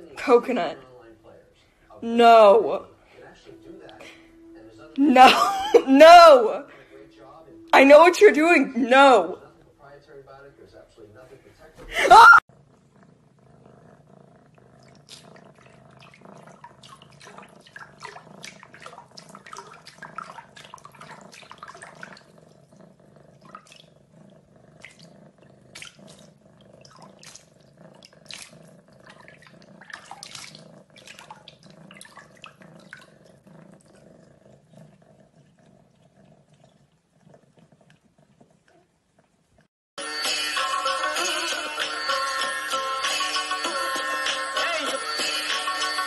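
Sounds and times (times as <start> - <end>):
cat splashing water in a sink: 14.8 - 22.5, 23.3 - 24.0, 25.7 - 33.4.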